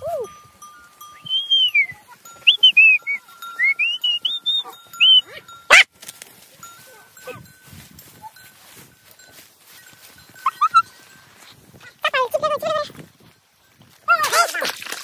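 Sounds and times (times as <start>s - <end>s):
person whistling a tune: 1.1s - 5.3s.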